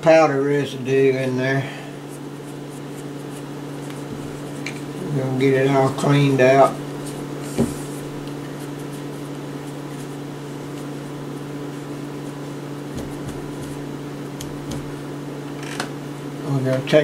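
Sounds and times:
steady low hum: 0.0 - 17.0
faint scuffs and knocks: 6.9 - 11.0, 12.3 - 15.0.

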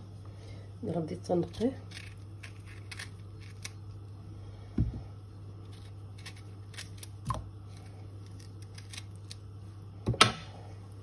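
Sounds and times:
steady low hum: 0.0 - 11.0
knife scraping cardoon stalks: 1.4 - 3.8.

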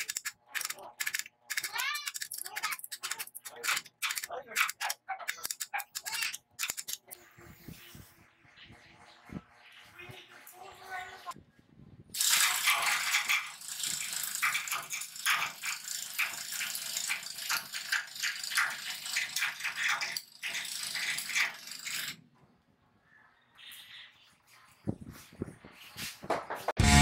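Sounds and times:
drill driving rattling winch: 12.2 - 22.2.

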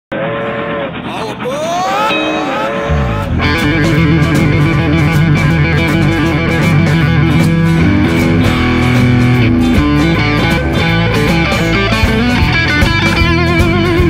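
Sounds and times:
electric guitar riff: 0.1 - 14.0
steady drum beat: 1.0 - 14.0
bass: 2.9 - 14.0.

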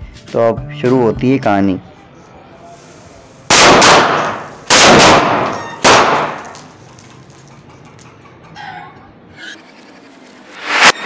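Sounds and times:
firecrackers exploding: 2.9 - 7.5.

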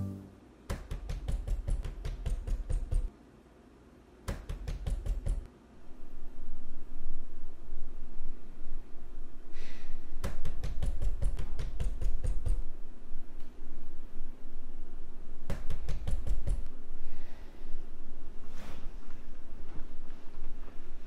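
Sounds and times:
knuckles knocking on a door: 4.3 - 5.5.

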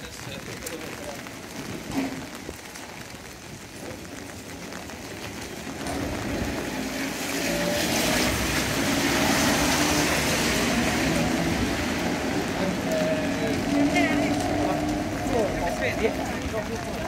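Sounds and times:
car tyres hissing on wet road: 3.8 - 17.0
tram running on tracks: 5.0 - 17.0.

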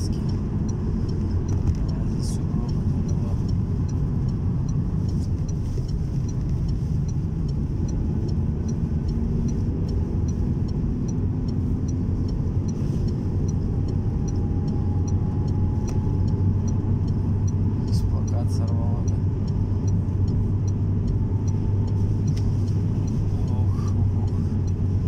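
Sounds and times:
wind against car: 0.0 - 18.2
car engine and tyre noise: 0.0 - 25.0
faint regular ticking: 0.0 - 25.0.

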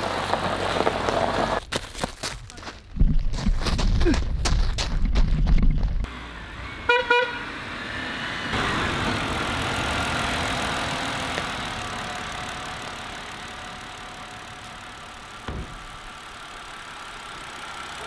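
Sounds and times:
car engine and tyre noise: 0.0 - 18.0
car horn toots: 6.8 - 7.5.

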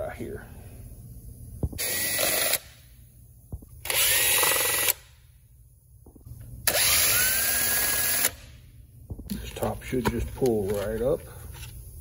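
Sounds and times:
power drill whining: 6.7 - 8.4.

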